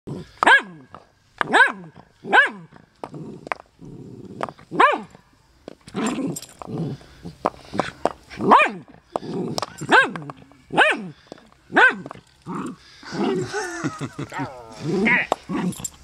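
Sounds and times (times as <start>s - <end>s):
dog barking high-pitched: 0.4s - 0.8s, 1.5s - 2.6s, 4.8s - 5.1s, 8.5s - 8.8s, 9.9s - 11.1s, 11.7s - 12.1s
dog growling low: 3.0s - 4.6s, 6.0s - 7.4s, 9.1s - 9.8s, 12.4s - 16.0s.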